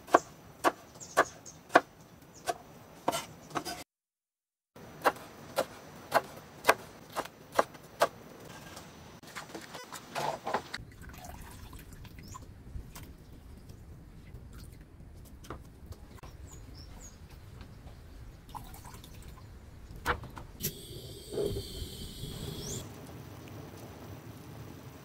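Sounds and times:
water dripping and splashing: 0:10.8 - 0:13.2, 0:22.8 - 0:25.0
faint bird chirps: 0:20.6 - 0:22.9.

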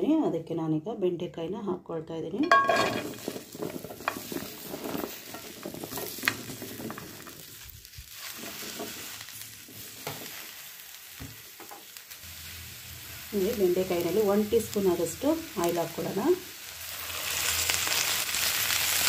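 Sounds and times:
okra clattering in frying pan: 0:02.4 - 0:07.6, 0:08.2 - 0:10.5.

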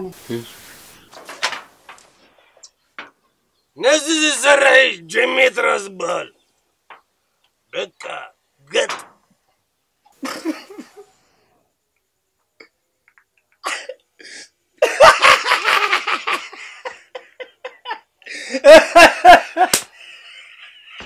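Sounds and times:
man laughing loudly: 0:10.2 - 0:11.0, 0:14.8 - 0:21.0.

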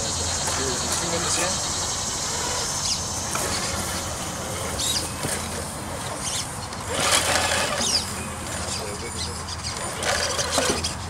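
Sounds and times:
toy car motor and gears: 0:02.2 - 0:11.0.

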